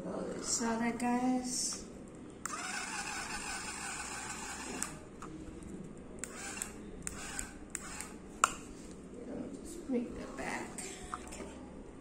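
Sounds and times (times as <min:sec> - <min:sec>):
toy car motor whirring: 0:02.4 - 0:05.0, 0:06.2 - 0:08.2.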